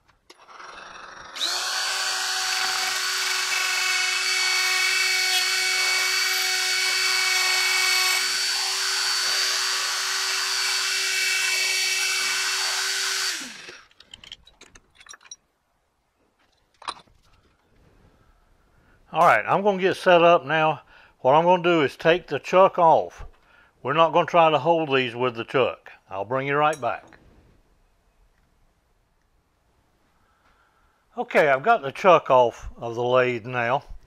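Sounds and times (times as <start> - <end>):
die grinder whining: 0.3 - 14.0.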